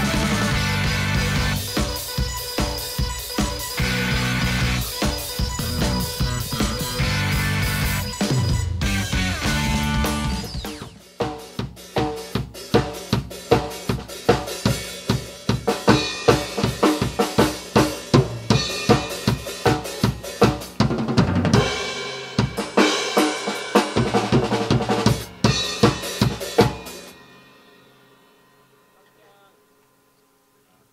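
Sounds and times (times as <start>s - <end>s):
drum kit rock beat: 0.0s - 28.5s
cymbal crash: 25.1s - 29.0s.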